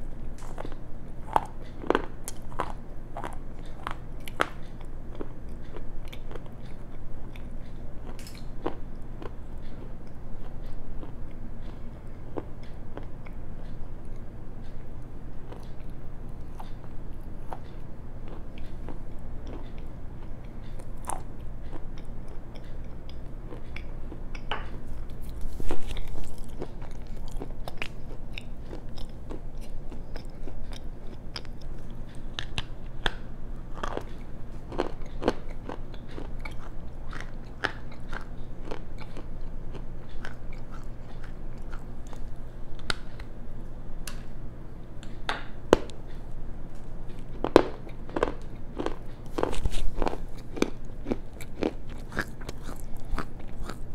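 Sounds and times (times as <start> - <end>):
steady low hum: 0.0 - 53.9
stone crunching between teeth: 47.3 - 53.9.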